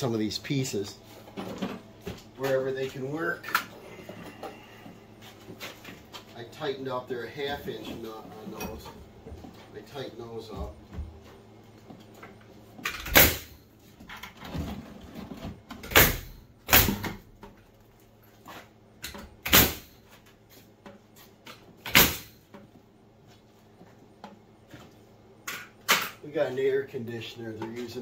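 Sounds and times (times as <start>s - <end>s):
nail gun shots: 13.0s - 13.5s, 15.9s - 17.1s, 19.4s - 19.9s, 21.9s - 22.3s.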